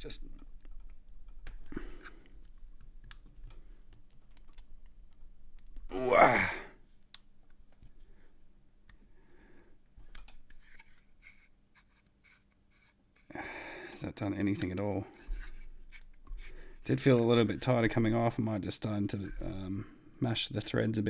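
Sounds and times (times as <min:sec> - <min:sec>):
man saying ooh: 0:05.9 - 0:06.7
plastic handling clicks: 0:14.5 - 0:14.8.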